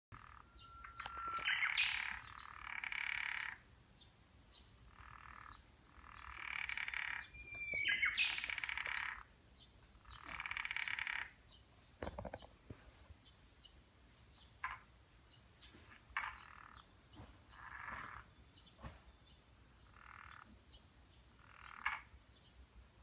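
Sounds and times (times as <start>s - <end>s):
frog croaking: 0.2s - 3.7s, 4.8s - 9.3s, 10.0s - 11.4s, 14.6s - 14.9s, 16.1s - 16.9s, 17.5s - 18.3s, 19.8s - 20.7s, 21.4s - 22.2s
thin steady whistle: 0.6s - 1.4s.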